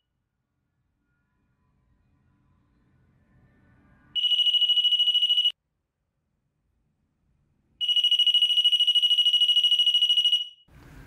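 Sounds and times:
door knob alarm beeping rapidly: 7.8s - 10.6s.

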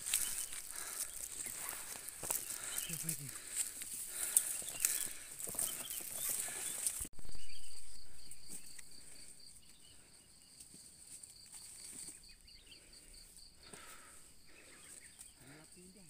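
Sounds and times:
footsteps through dry undergrowth: 0.0s - 12.5s
insects chirping: 0.0s - 16.0s.

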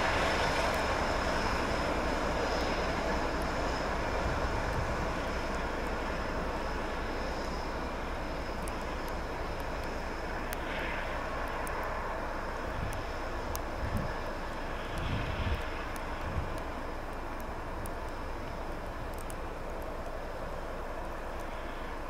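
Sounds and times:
diesel locomotive engine rumble: 0.0s - 22.0s
faint high whine: 0.0s - 22.0s
light ticks: 4.4s - 12.0s, 12.7s - 22.0s.

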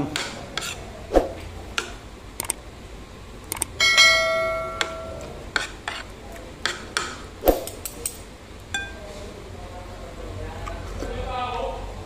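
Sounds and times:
bell-like ding: 3.8s - 5.2s.

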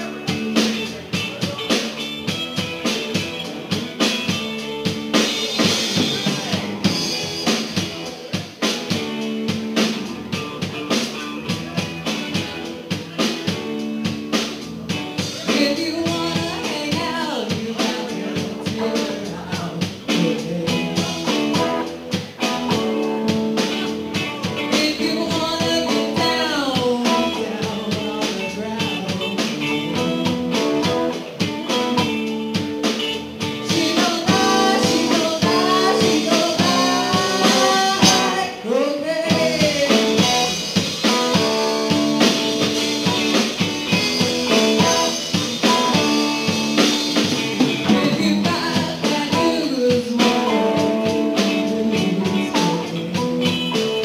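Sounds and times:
amplified electric guitars: 0.0s - 54.0s
person singing into microphone: 15.2s - 22.8s, 23.6s - 32.2s, 33.4s - 41.6s, 47.6s - 54.0s.

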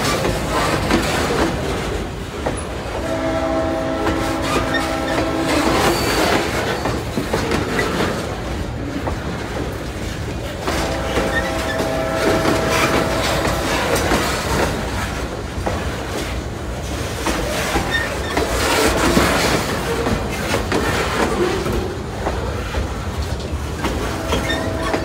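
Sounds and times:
freight train wheels clattering: 0.0s - 25.0s.

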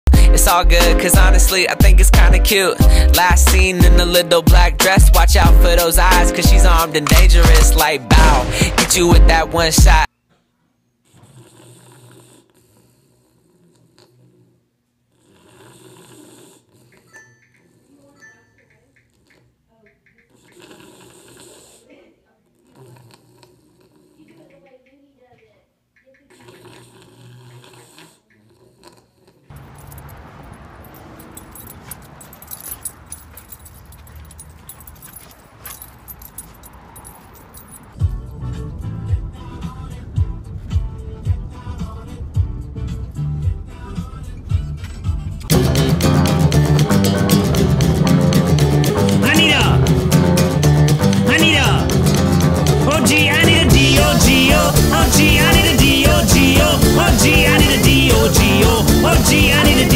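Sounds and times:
music with heavy beat: 0.1s - 10.1s, 45.5s - 59.9s
dog snoring: 11.0s - 18.2s, 20.2s - 24.5s, 26.2s - 29.5s
dog collar jingling: 29.5s - 38.0s.

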